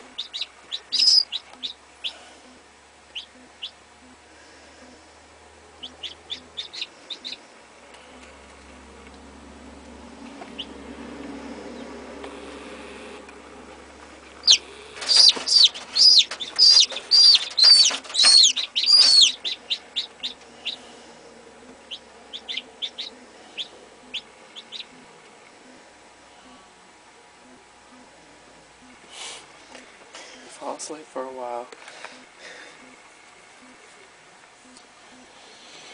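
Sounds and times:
chick peeping: 0.0 - 4.2, 5.6 - 7.4, 10.4 - 10.8, 14.3 - 21.0, 21.6 - 25.8.

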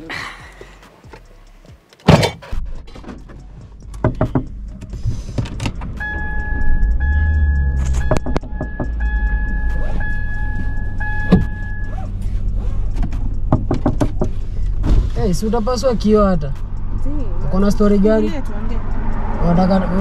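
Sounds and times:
car engine rumbling: 0.0 - 20.0
car door shutting: 2.0 - 3.4, 9.6 - 12.1, 12.8 - 15.3
high electronic tone: 6.0 - 12.0.

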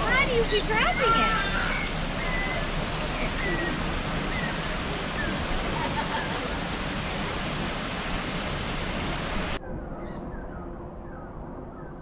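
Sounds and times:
small birds chirping: 0.0 - 5.5
flowing water rushing: 0.0 - 9.6.

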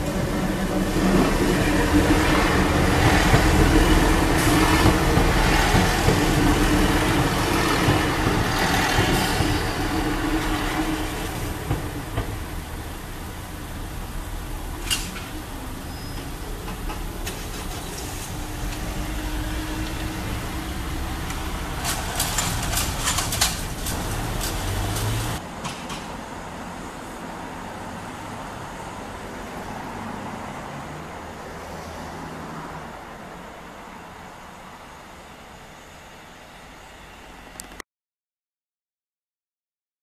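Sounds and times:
diesel train engine rumble: 0.0 - 31.8
distant train hum: 0.0 - 37.8
level crossing barriers rattling: 19.9 - 26.1.

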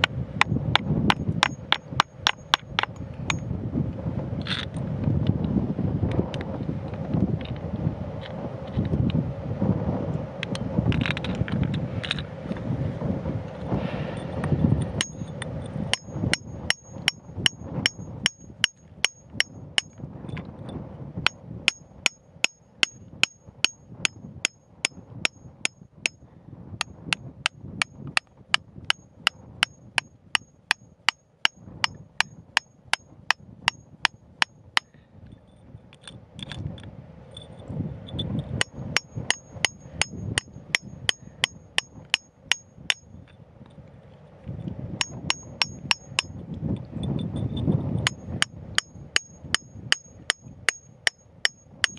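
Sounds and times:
hammer striking steel chisel: 0.0 - 3.4, 15.0 - 15.3, 15.9 - 20.0, 21.7 - 26.2, 29.6 - 34.9, 38.6 - 43.1, 45.0 - 46.4, 48.0 - 51.9.

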